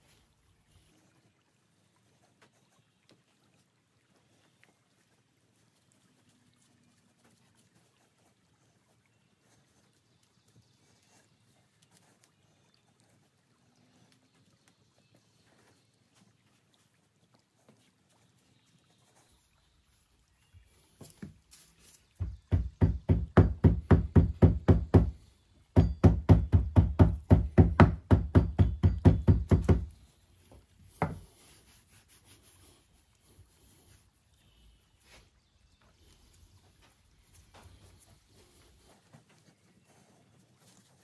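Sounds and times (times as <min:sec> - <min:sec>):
sand rammed with dull thuds: 0:22.2 - 0:25.2, 0:25.8 - 0:29.9
sand handling sounds: 0:29.6 - 0:41.0.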